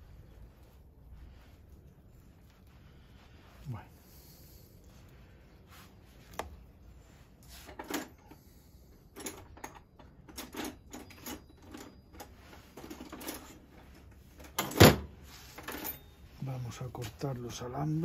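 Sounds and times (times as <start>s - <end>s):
light clicks and knocks of handling: 7.4s - 16.3s.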